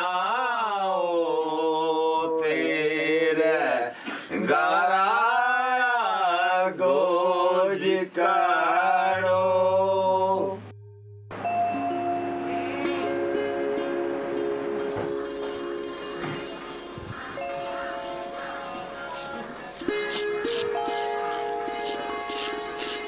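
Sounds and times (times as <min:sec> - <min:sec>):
steady low drone: 0:09.1 - 0:17.0.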